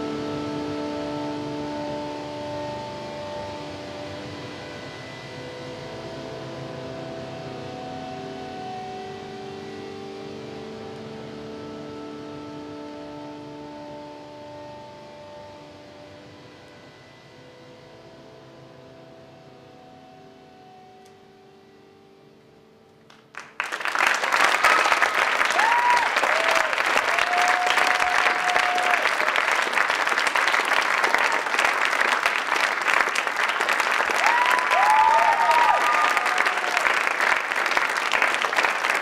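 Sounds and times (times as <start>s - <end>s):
audience applauding: 23.1s - 39.0s
whoops and cheers: 25.4s - 29.7s, 34.0s - 37.2s.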